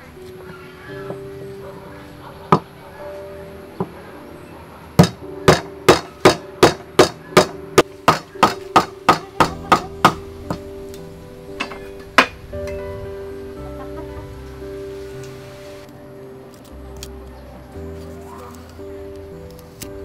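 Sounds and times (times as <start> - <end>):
cleaver chopping on wooden block: 5.0 - 9.9.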